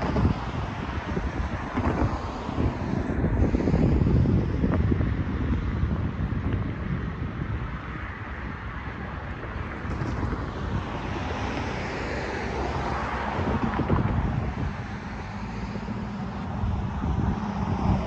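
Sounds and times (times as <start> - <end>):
road traffic hiss: 0.0 - 18.0
wind buffeting microphone: 0.0 - 18.0
car passing close: 7.8 - 18.0.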